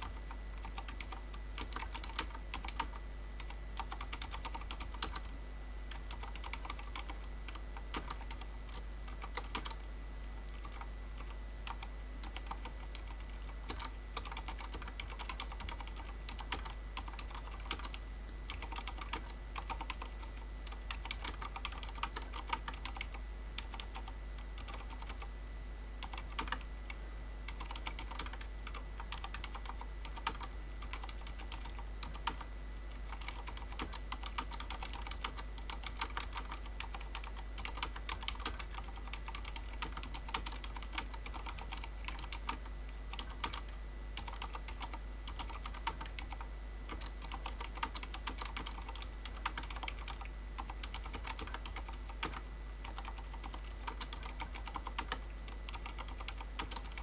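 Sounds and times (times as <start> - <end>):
typing on mechanical keyboard: 0.0 - 5.3, 5.9 - 9.8, 10.5 - 25.3, 26.0 - 26.7, 27.5 - 32.5, 33.1 - 57.0.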